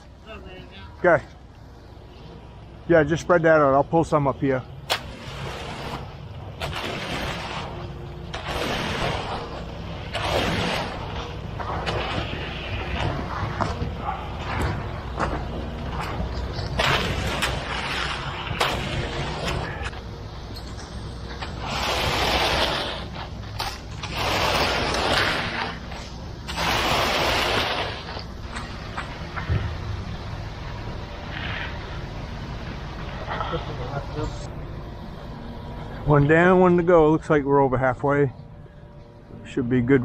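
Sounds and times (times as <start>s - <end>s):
concrete mixer truck engine hum: 4.6s - 40.0s
concrete rake scraping wet concrete: 5.0s - 20.0s, 21.5s - 29.1s.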